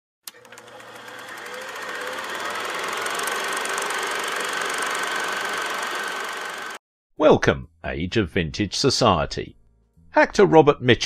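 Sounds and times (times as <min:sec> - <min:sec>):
film projector clattering: 0:00.3 - 0:06.8.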